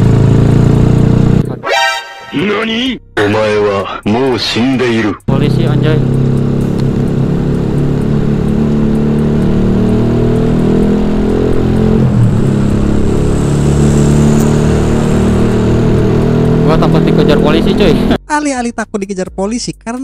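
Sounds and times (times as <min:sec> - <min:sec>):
motorcycle engine running: 0:00.0 - 0:01.6, 0:05.2 - 0:18.2.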